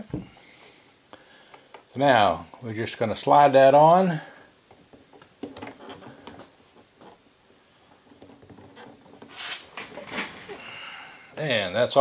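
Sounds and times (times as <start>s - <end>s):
fingers rubbing tubing: 4.9s - 7.2s, 8.0s - 10.5s.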